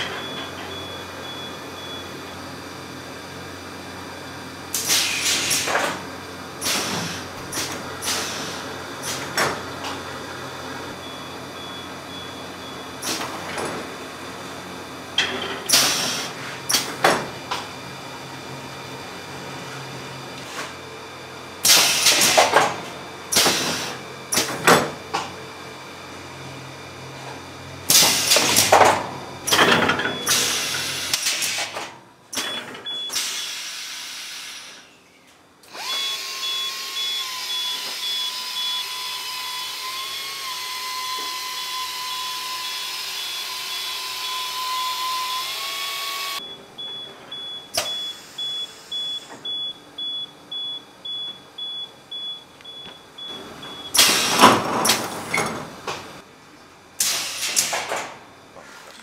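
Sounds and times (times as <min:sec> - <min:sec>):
loud mechanical clatter: 0:21.6 - 0:25.3, 0:53.9 - 0:56.0
sewing machine head whining: 0:35.7 - 0:46.4.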